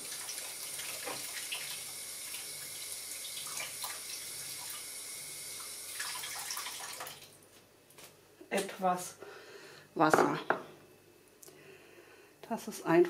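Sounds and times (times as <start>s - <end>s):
tap water filling a bowl: 0.0s - 7.4s.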